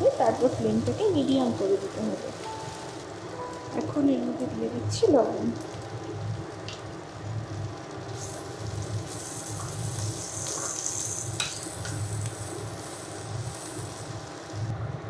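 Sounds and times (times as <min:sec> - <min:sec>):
low pulsing hum: 0:00.0 - 0:10.5
vegetables sizzling in a frying pan: 0:00.0 - 0:15.0.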